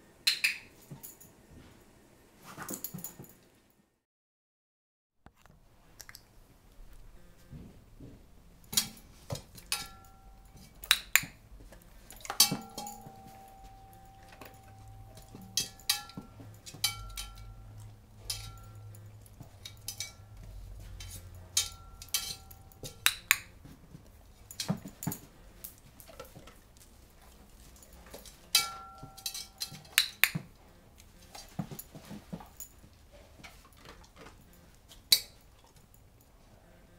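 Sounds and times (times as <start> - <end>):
dog claws clinking on metal pan: 8.7 - 11.4, 12.0 - 23.7, 27.2 - 30.5, 33.4 - 36.0.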